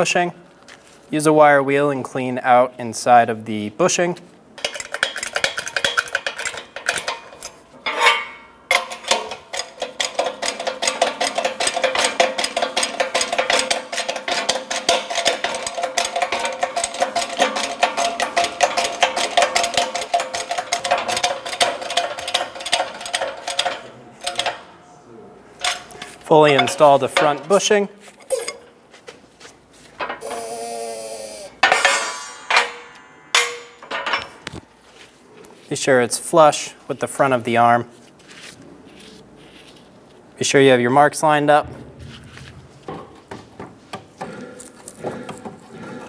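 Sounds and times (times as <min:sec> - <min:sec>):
shop press metallic chatter: 0:04.6 - 0:28.7, 0:30.0 - 0:34.6.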